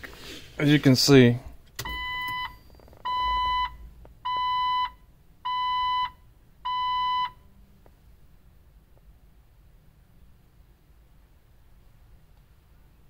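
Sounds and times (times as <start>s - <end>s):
electronic beeps: 1.9s - 6.1s.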